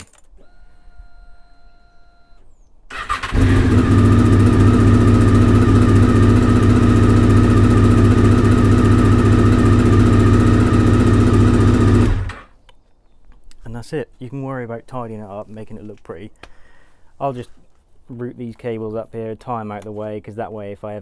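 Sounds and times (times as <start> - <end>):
motorcycle engine starting and idling: 2.9 - 12.6.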